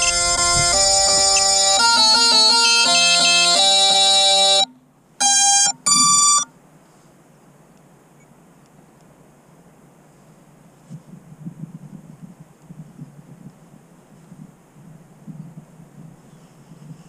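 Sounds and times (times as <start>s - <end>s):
buzzy electronic ringtone melody: 0.0s - 6.5s
faint steady hiss: 0.0s - 17.0s
short beeps: 5.2s - 6.5s.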